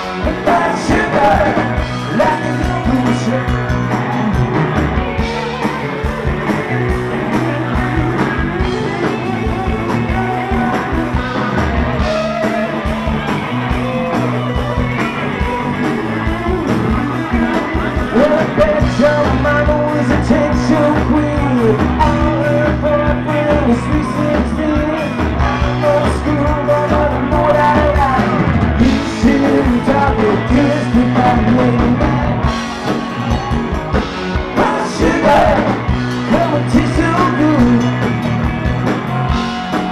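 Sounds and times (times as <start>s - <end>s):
man singing: 0.0s - 4.6s, 17.2s - 32.6s, 34.4s - 38.2s
drums: 0.0s - 39.9s
electric guitar: 0.0s - 39.9s.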